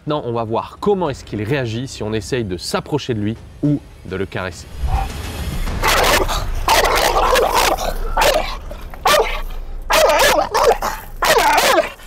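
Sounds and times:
dog barking loudly: 0:05.8 - 0:12.0.

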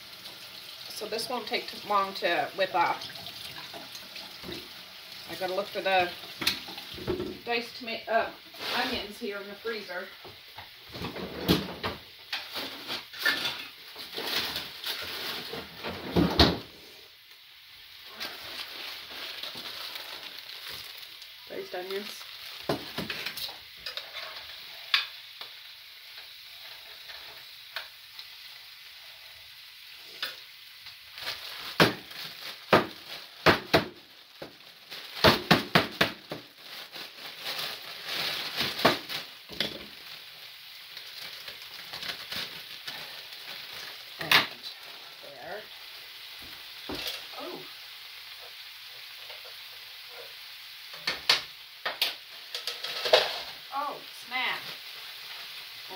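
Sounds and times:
sausages sizzling in a frying pan: 0:00.0 - 0:55.9
metal tongs clinking on a pan: 0:23.2 - 0:25.2, 0:52.0 - 0:53.3.

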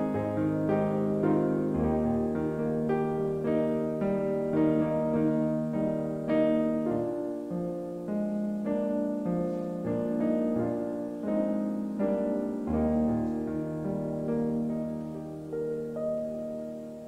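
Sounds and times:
slow piano piece: 0:00.0 - 0:17.0.

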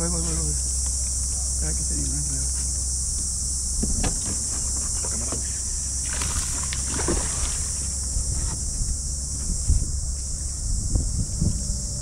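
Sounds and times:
insect buzz: 0:00.0 - 0:12.0
low wind rumble: 0:02.7 - 0:12.0.

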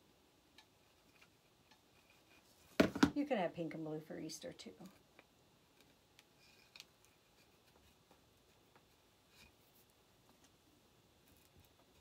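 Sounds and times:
faint ticks and rustles: 0:00.5 - 0:02.8, 0:04.6 - 0:12.0.

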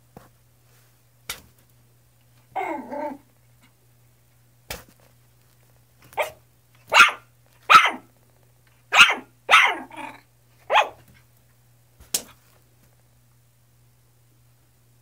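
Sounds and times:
puppy barking: 0:06.1 - 0:08.1, 0:08.9 - 0:11.1.

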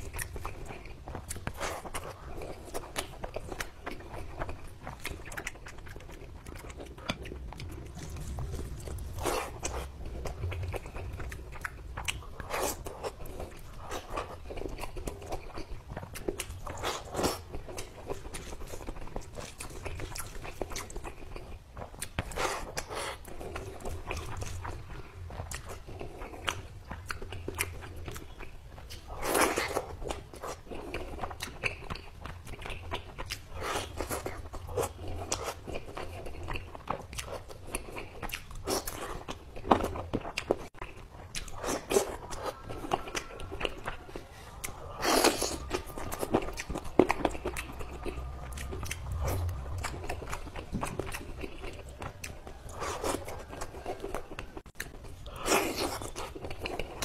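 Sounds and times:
person chewing: 0:00.0 - 0:57.0
wet mouth clicks and squelches: 0:40.4 - 0:57.0.

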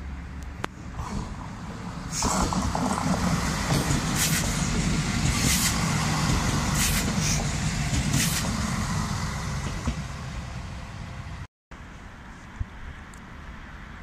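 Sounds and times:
train rumble on rails: 0:00.0 - 0:14.0
wheels clacking on track: 0:00.4 - 0:11.4.

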